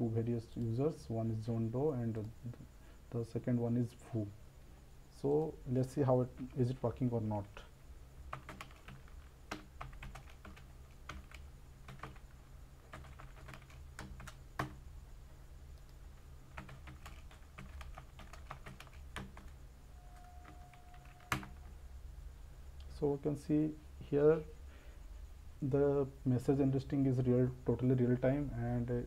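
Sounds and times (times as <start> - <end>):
low steady hum: 0.0 - 29.0
computer keyboard typing: 8.3 - 12.3, 12.9 - 14.8, 15.8 - 19.6, 20.2 - 21.7.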